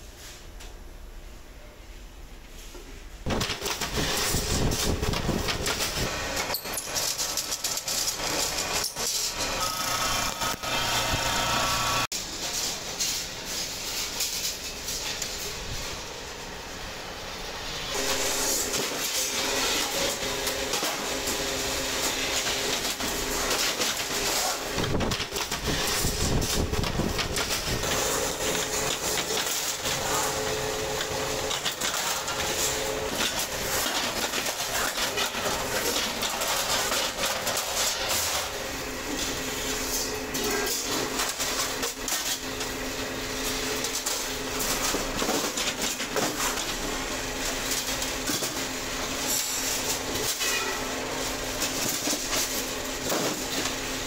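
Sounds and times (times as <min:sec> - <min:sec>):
motor hum: 0:08.0 - 0:12.1.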